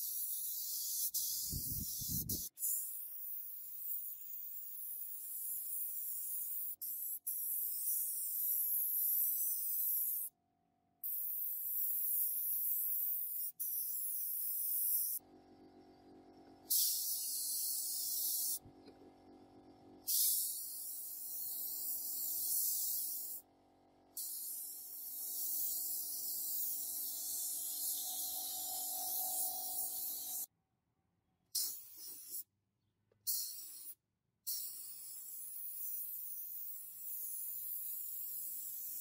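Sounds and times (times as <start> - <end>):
spray gun hissing: 0.0 - 3.3, 16.7 - 18.6, 24.2 - 30.5.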